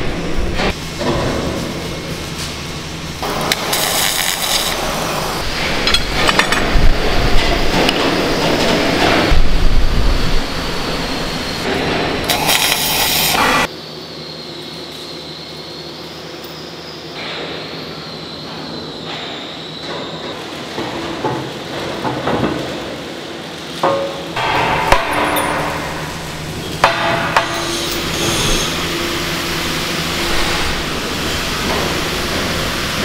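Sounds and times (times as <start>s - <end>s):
loud workshop noise: 0.0s - 33.0s
hammer striking steel plate: 23.8s - 28.3s.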